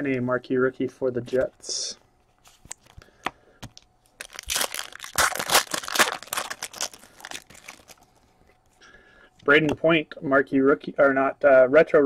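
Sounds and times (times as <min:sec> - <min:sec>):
wrapper crinkling and tearing: 0:04.2 - 0:08.2.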